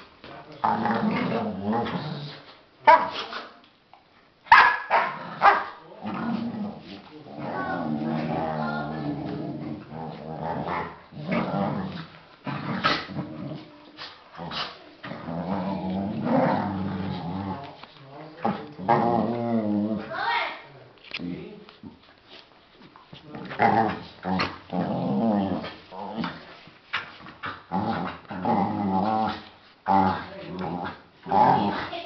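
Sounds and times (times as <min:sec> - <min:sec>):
dogs growling: 0:00.5 - 0:02.5, 0:05.0 - 0:20.2, 0:23.2 - 0:26.6, 0:27.4 - 0:32.0
dogs barking: 0:04.5 - 0:05.8.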